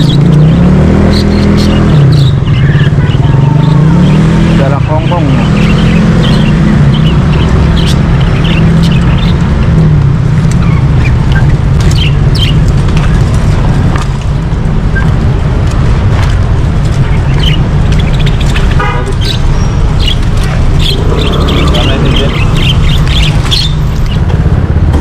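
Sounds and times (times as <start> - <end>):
caged birds chirping: 0.0 - 25.0
street traffic rumble: 0.0 - 25.0
rapid series of notes: 20.5 - 23.6.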